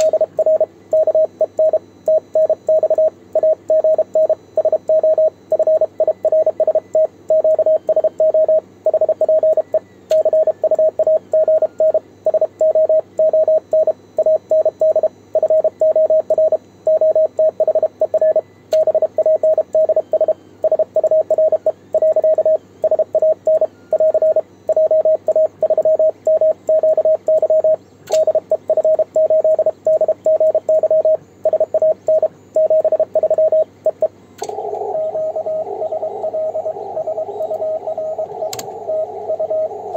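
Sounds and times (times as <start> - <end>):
morse code tone: 0.0 - 34.0.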